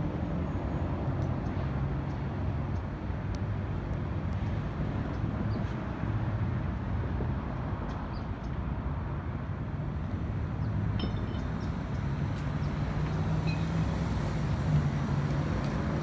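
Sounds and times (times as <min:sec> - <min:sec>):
engine hum: 0:00.0 - 0:16.0
road traffic rumble: 0:00.0 - 0:16.0.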